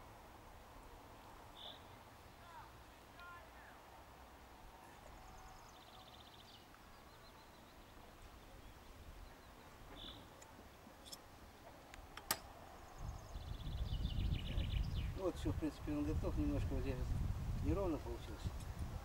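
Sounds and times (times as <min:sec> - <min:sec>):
distant birds trilling: 0:00.8 - 0:15.8.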